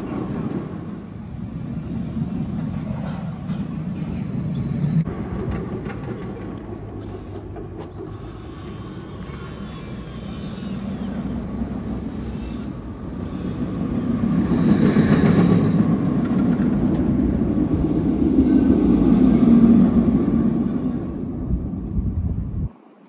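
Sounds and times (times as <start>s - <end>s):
roller coaster rumbling on track: 0.0s - 22.7s.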